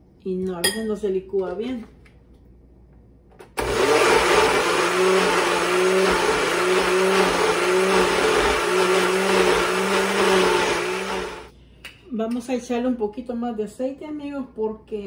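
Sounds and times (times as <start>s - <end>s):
electric blender motor running: 3.6s - 11.5s.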